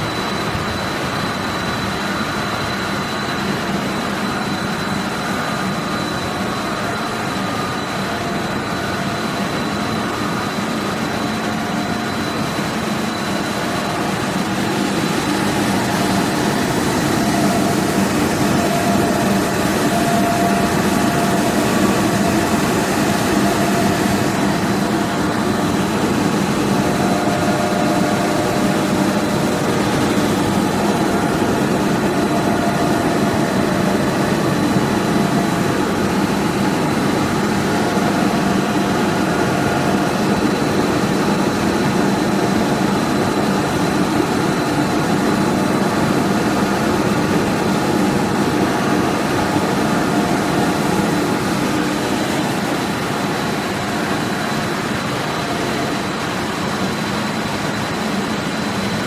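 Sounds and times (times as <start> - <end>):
faint high whine: 0.0 - 44.9
machinery humming: 0.0 - 59.0.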